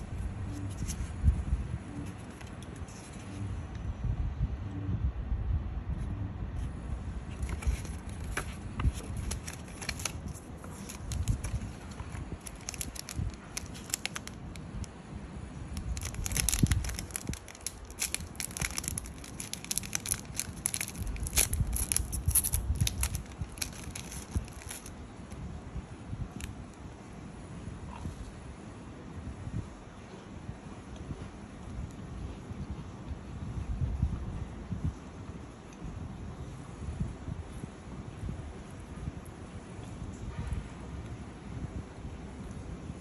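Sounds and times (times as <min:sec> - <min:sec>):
foil wrapper crinkling and tearing: 0:07.3 - 0:14.8, 0:15.7 - 0:24.9
paper leaflet handled: 0:07.4 - 0:14.5, 0:15.8 - 0:24.9.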